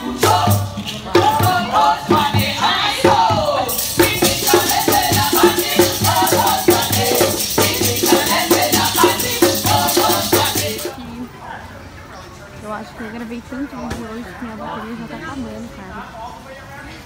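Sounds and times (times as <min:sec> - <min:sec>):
hand drums beating: 0:00.2 - 0:10.9
shakers rattling: 0:03.6 - 0:11.0.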